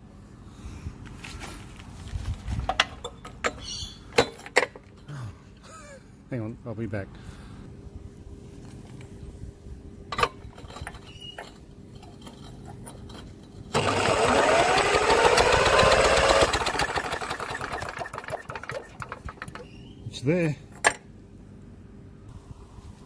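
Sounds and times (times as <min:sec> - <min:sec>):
drill cranking mower engine: 0:13.7 - 0:19.8.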